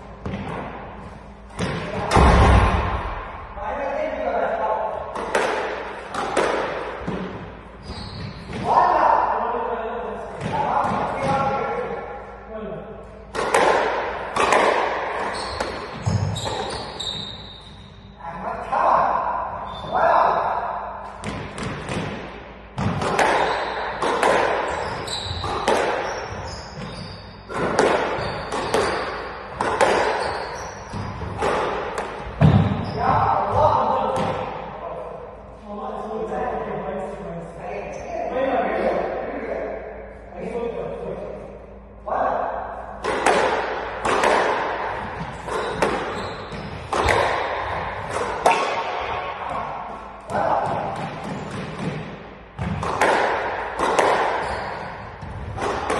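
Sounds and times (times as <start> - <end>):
squash ball cracking off rackets: 5.1 - 7.3, 13.3 - 16.8, 21.2 - 26.2, 27.5 - 32.8, 43.0 - 49.1, 50.2 - 55.9
shoe squeaks: 7.8 - 8.6, 15.2 - 18.2, 19.6 - 20.1, 23.4 - 24.0, 24.6 - 31.4, 32.4 - 33.5, 45.3 - 46.9, 54.3 - 55.4.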